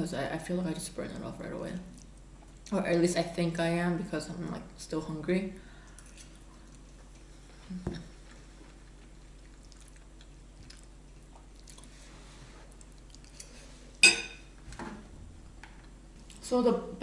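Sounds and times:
faint chewing: 0:01.8 - 0:02.8, 0:05.7 - 0:14.0.

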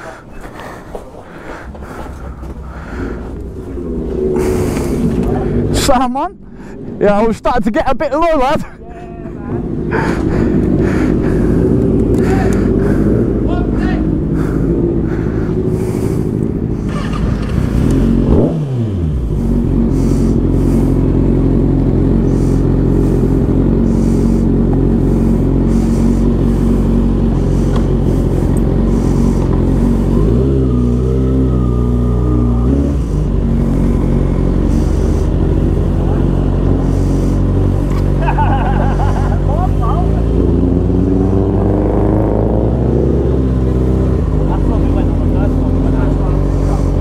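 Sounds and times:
motorcycle engine running: 0:09.4 - 0:47.0.

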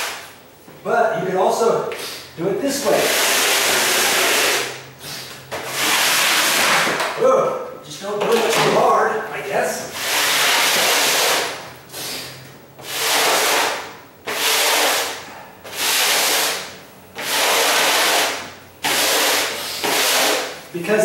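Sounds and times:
broom sweeping wooden floor: 0:09.9 - 0:20.6.

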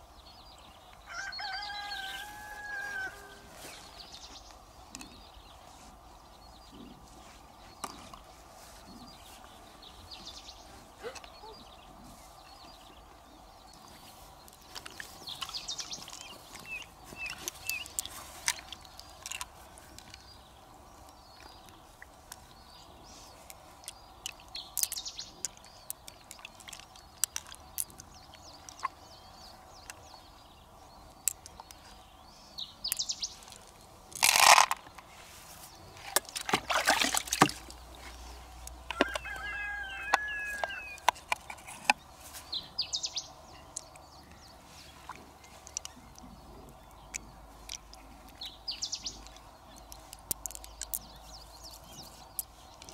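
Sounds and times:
birds chirping: 0:00.0 - 0:52.9
chickens calling: 0:01.0 - 0:04.4, 0:36.6 - 0:52.9
rooster call: 0:01.1 - 0:03.6, 0:38.9 - 0:41.1.

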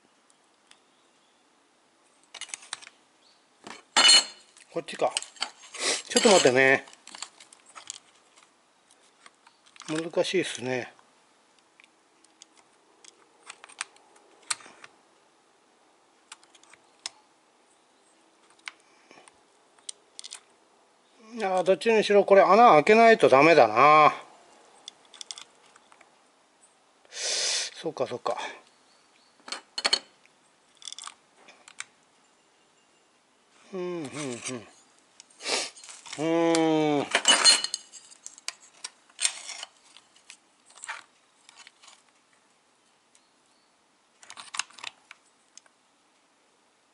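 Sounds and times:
metal on metal clicks: 0:24.8 - 0:26.1
man humming: 0:33.6 - 0:34.8, 0:36.2 - 0:37.1.

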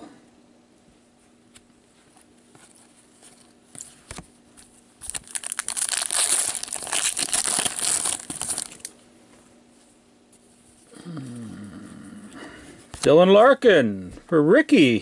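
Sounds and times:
foil wrapper tearing and crinkling: 0:05.0 - 0:08.9.

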